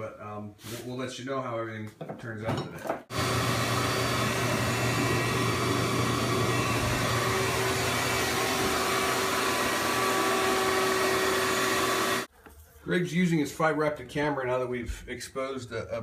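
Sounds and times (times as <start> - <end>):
vacuum running: 3.1 - 12.3.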